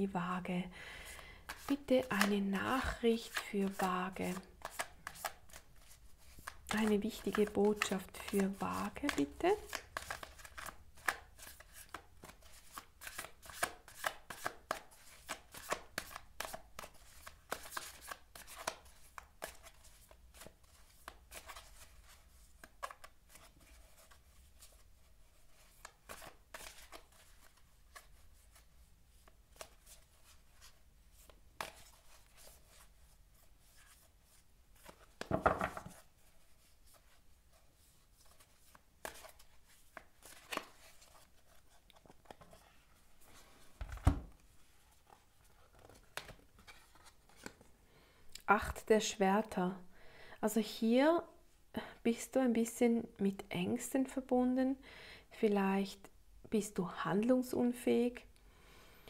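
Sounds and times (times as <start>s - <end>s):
cards being shuffled: 1.4s - 32.9s, 33.6s - 42.7s, 43.3s - 47.7s.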